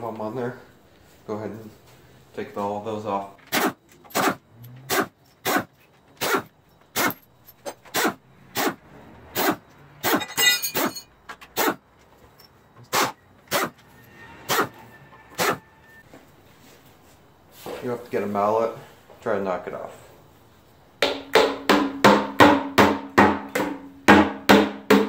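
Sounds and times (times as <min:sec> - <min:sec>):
air wrench bursts with whine: 0:03.4 - 0:07.2, 0:07.8 - 0:11.8, 0:12.8 - 0:16.0.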